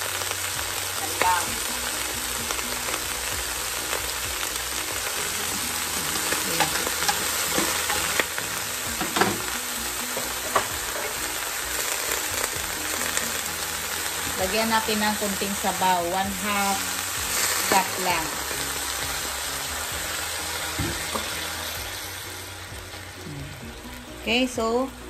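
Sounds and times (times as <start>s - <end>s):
pot sizzling: 0.0s - 25.0s.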